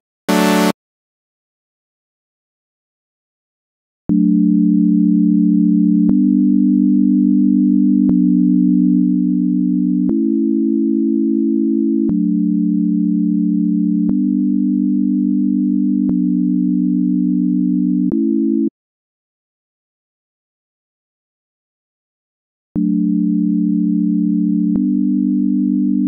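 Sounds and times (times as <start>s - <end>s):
synthesizer sustained low chords: 0.3s - 0.7s.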